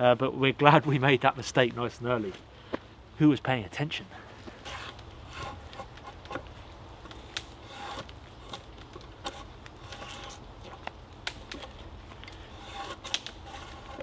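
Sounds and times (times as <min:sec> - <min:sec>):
drawknife scraping bark off log: 0:04.5 - 0:14.0.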